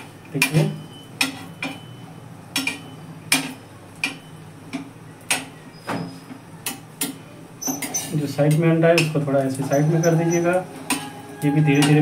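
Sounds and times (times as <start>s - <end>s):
metal spoon tapping on griddle: 0.3s - 1.9s, 2.5s - 5.6s, 6.6s - 7.2s, 8.4s - 9.3s, 10.8s - 12.0s.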